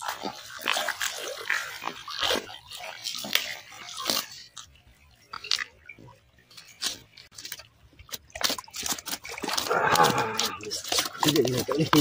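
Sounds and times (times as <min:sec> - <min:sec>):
fish splashing in water: 0:00.0 - 0:12.0.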